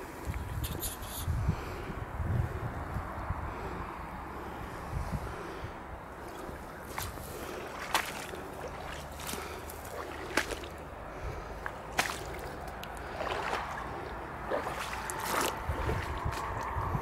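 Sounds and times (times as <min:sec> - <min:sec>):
wind rumble on microphone: 0:00.0 - 0:17.0
footsteps through wet grass: 0:06.2 - 0:16.8
dry stalks snapping: 0:06.9 - 0:10.8, 0:11.6 - 0:13.7.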